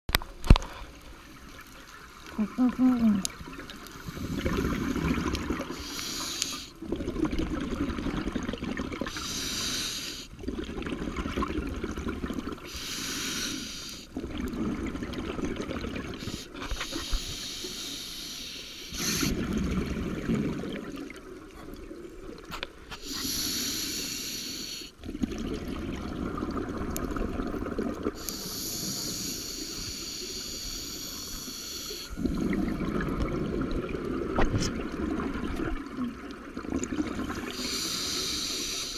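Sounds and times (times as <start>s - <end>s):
exhaled air bubbling: 0.4s - 17.7s, 18.9s - 38.9s
regulator inhale hiss: 4.0s - 6.8s, 9.1s - 10.3s, 12.7s - 14.1s, 16.2s - 19.4s, 23.0s - 25.0s, 28.2s - 32.2s, 37.4s - 38.9s.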